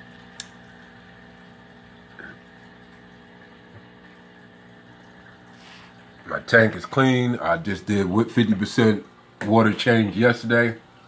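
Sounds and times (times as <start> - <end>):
aquarium pump and filter hum: 0.0 - 11.0
faint bubbling: 0.0 - 11.0.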